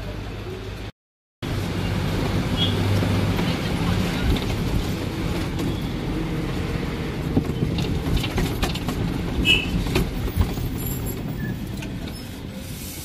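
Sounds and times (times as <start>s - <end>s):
bus engine and road rumble: 0.0s - 13.0s
short rattles and knocks: 7.3s - 11.3s.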